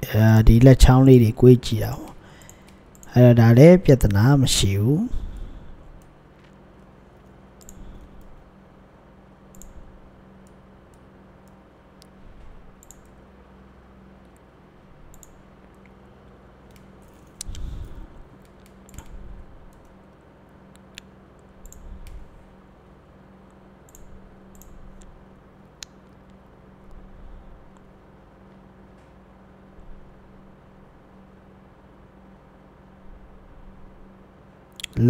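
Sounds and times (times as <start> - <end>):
faint low hum: 0.0 - 35.0
computer mouse clicks: 2.4 - 3.1, 7.6 - 8.4, 9.5 - 13.2, 15.1 - 16.0, 16.6 - 17.7, 18.4 - 20.0, 20.7 - 22.2, 23.5 - 25.2
keyboard keys clicking: 12.8 - 13.2, 15.1 - 15.9.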